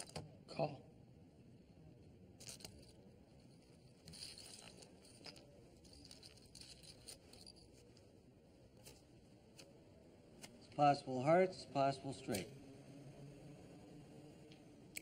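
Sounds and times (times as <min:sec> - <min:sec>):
poker chips and cards handled: 0:02.3 - 0:09.8.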